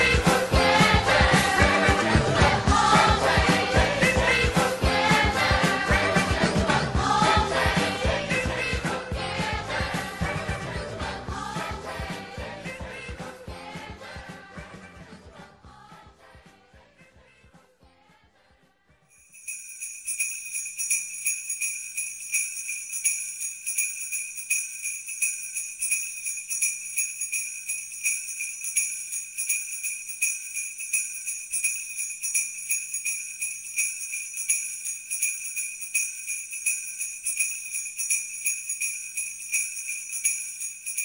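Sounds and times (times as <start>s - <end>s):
sleigh bells jingling: 0.0s - 10.9s, 19.1s - 41.0s.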